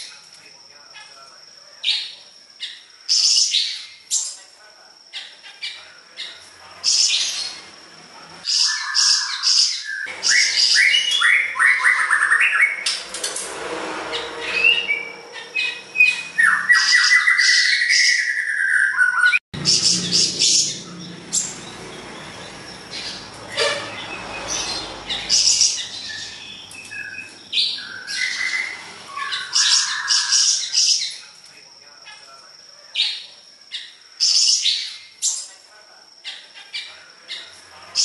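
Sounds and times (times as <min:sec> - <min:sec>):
songbird singing: 0:00.0 - 0:13.3, 0:14.0 - 0:38.0
harsh squawky bird calls: 0:05.1 - 0:07.8, 0:08.4 - 0:13.2, 0:13.9 - 0:31.2, 0:32.9 - 0:35.5.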